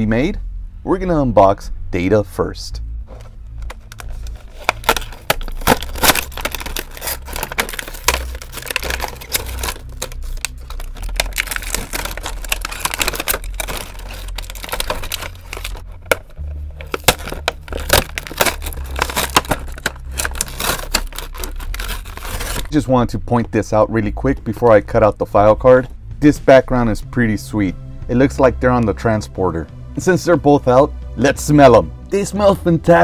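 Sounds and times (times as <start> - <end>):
plastic packaging crackling: 3.5 - 22.8.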